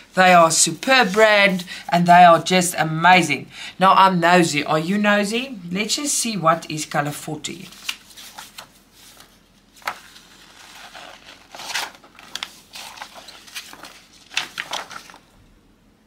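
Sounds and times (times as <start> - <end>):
paper pages rustling: 0.5 - 1.6, 7.6 - 15.5.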